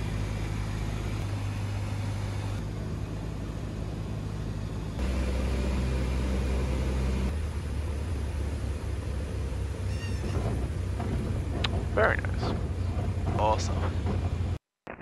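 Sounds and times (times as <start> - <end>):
propeller plane engine droning: 0.0 - 14.6.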